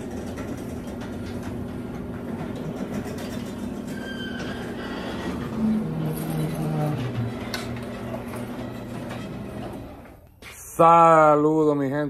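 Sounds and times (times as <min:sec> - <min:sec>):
door rollers rattling and clicking: 0:00.0 - 0:10.2
garage door motor humming: 0:00.0 - 0:10.4.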